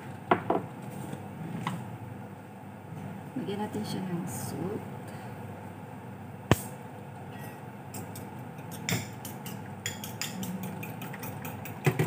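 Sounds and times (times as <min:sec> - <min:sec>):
metal spoon clinking against bowl: 0:07.4 - 0:12.0.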